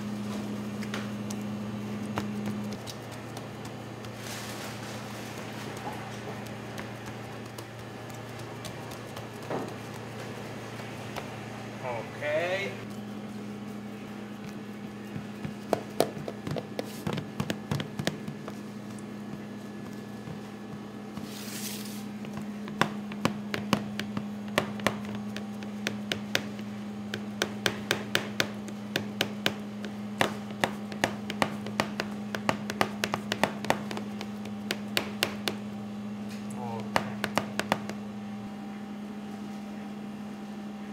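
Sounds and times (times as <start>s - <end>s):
steady low hum: 0.0s - 40.9s
fingers tapping dough in metal tray: 2.0s - 4.2s, 5.1s - 11.4s, 14.4s - 21.3s, 22.2s - 35.7s, 36.8s - 38.0s.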